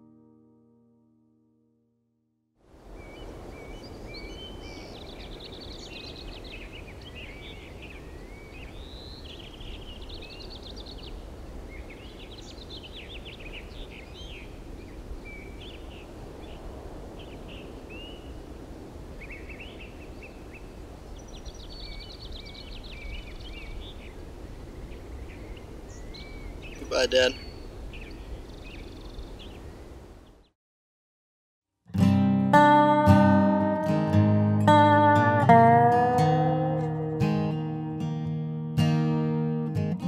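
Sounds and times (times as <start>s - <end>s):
songbirds chirping: 2.8s - 30.5s.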